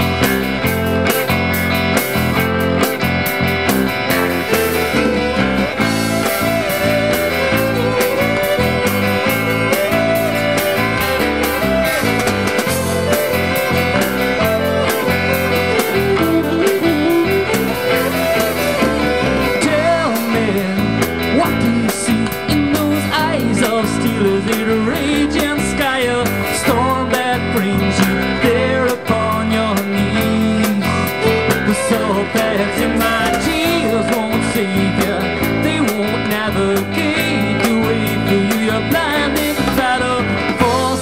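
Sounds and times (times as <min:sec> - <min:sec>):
fiddle melody: 0:00.0 - 0:21.0, 0:31.2 - 0:34.9
bass guitar: 0:00.0 - 0:41.0
electric guitar: 0:00.0 - 0:41.0
steady drum beat: 0:00.0 - 0:41.0.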